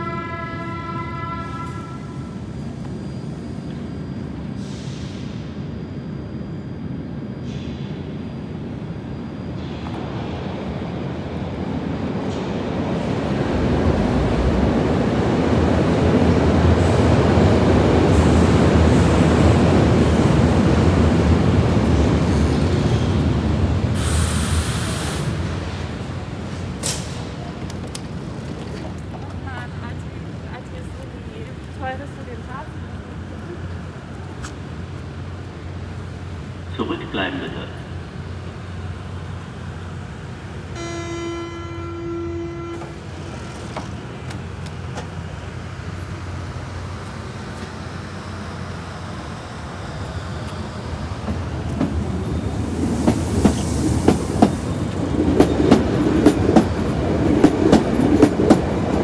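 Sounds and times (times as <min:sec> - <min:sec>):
low hum of standing train: 0:00.0 - 0:59.0
hissing air burst: 0:24.0 - 0:25.4
train wheels rumbling: 0:41.5 - 0:59.0.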